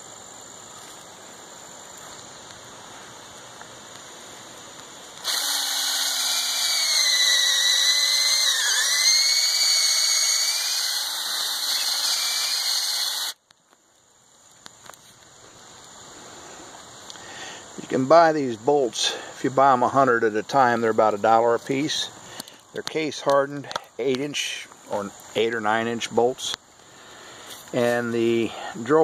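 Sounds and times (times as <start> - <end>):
cordless drill boring into wood: 5.2 - 13.4.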